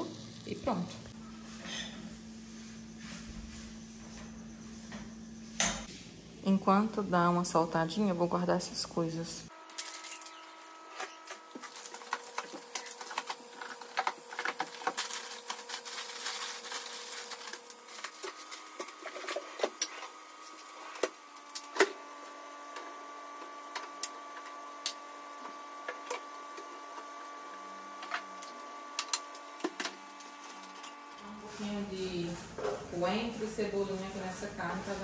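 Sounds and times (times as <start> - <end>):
packets rustling: 9.6 - 21.7.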